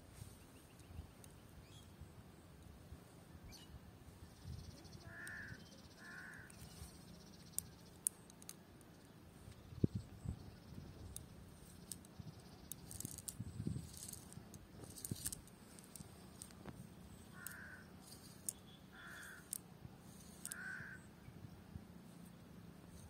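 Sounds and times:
crow cawing: 0:05.0 - 0:06.6, 0:17.3 - 0:17.9, 0:18.9 - 0:19.6, 0:20.4 - 0:21.0
net rustling and clicking: 0:06.0 - 0:08.7, 0:11.0 - 0:21.0.

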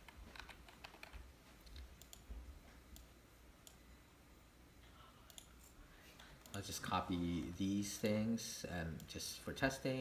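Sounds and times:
computer mouse clicks: 0:00.0 - 0:02.3, 0:05.3 - 0:05.8.

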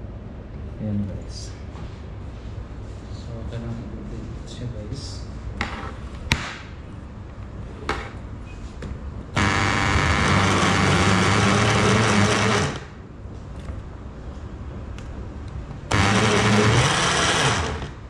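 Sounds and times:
blender running: 0:09.4 - 0:13.0, 0:15.9 - 0:18.0.

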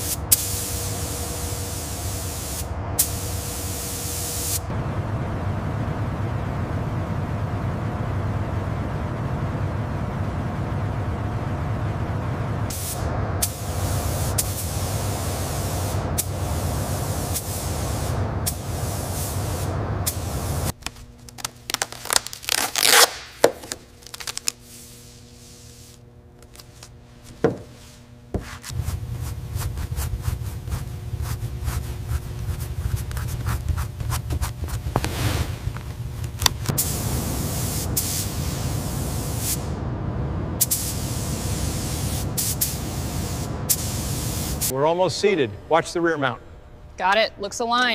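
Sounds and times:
paint spray gun hissing: 0:00.0 - 0:04.6, 0:12.7 - 0:20.7, 0:40.7 - 0:44.7.

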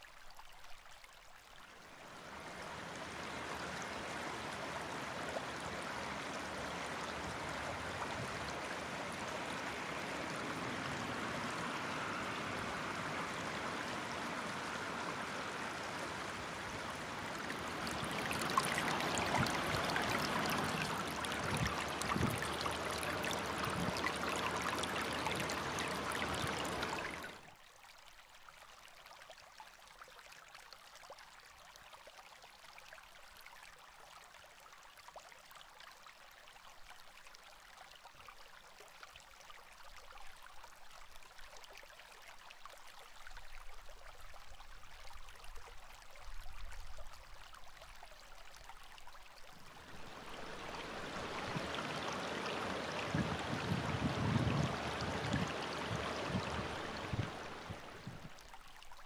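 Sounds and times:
stream babbling over rocks: 0:01.7 - 0:27.6, 0:37.7 - 0:59.0.

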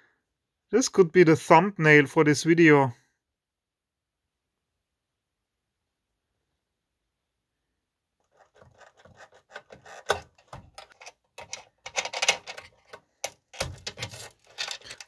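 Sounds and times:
fingers scratching on connectors: 0:08.2 - 0:15.0.

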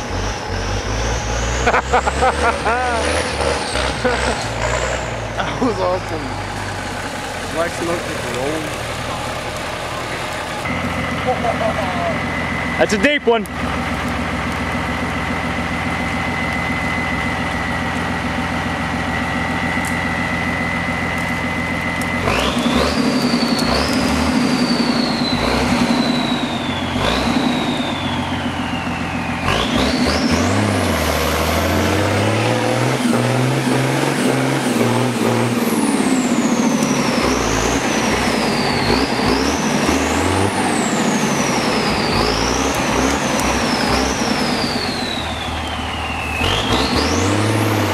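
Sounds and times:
truck engine revving: 0:00.0 - 0:47.9
high turbo whistle: 0:15.0 - 0:33.7, 0:34.6 - 0:47.9.

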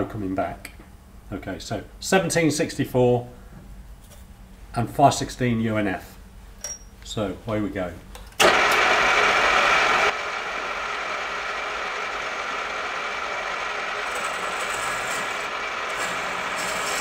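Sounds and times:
pillar drill drilling into metal: 0:08.4 - 0:17.0.

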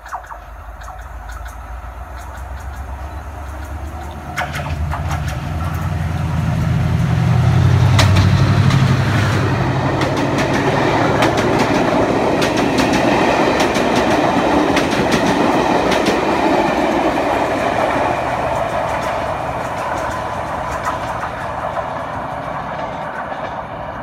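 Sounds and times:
diesel engine humming: 0:00.0 - 0:24.0
train coaches rumbling past: 0:00.0 - 0:24.0
wheel clicks over rail joints: 0:02.2 - 0:06.4.

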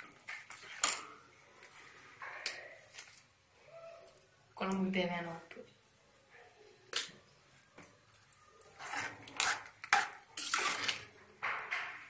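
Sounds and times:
spoon scraping thick curry: 0:08.1 - 0:11.2.

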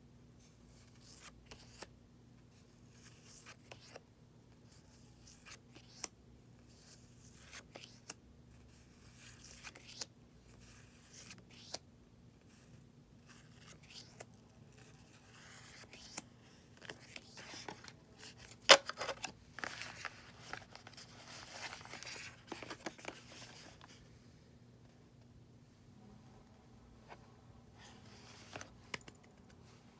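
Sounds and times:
paper rustling and crinkling: 0:16.8 - 0:24.0.

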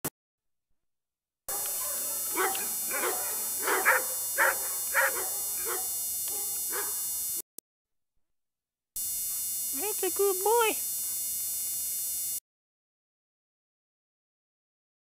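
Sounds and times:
tape hiss: 0:01.5 - 0:07.0
dogs barking: 0:01.5 - 0:07.1.

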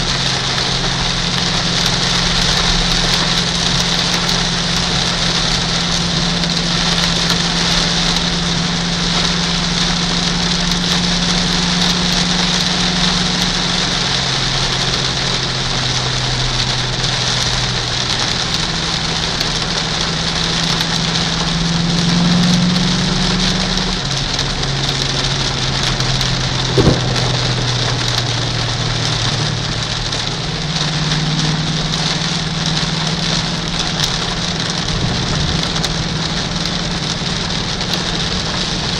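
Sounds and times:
car engine droning: 0:00.0 - 0:38.9
heavy rain hitting a car: 0:00.0 - 0:38.9
sharp knock: 0:26.7 - 0:27.6.

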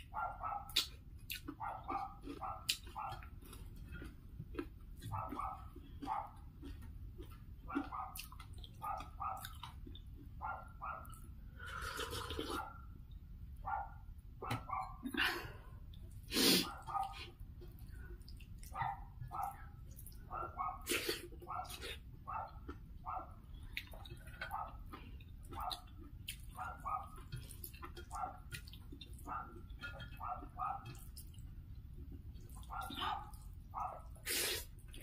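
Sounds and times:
person eating by hand: 0:00.0 - 0:13.2, 0:14.5 - 0:35.0
dog barking: 0:00.1 - 0:03.3, 0:05.0 - 0:06.4, 0:07.7 - 0:09.7, 0:10.4 - 0:11.2, 0:12.5 - 0:12.9, 0:13.6 - 0:15.0, 0:16.6 - 0:17.3, 0:18.7 - 0:19.7, 0:20.3 - 0:23.4, 0:24.4 - 0:24.9, 0:25.5 - 0:27.3, 0:28.0 - 0:28.5, 0:29.2 - 0:31.0, 0:32.6 - 0:34.3.

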